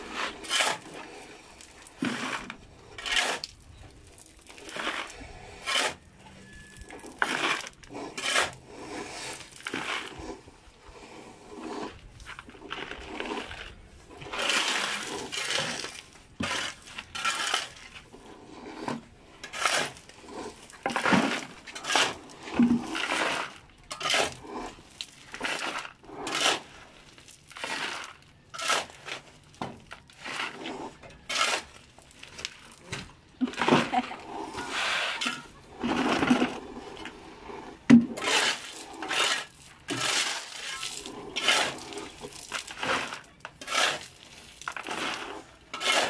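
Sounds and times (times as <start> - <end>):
shovel scraping gravel: 0.0 - 46.0
stones clattering into buckets: 11.9 - 18.0, 18.8 - 46.0.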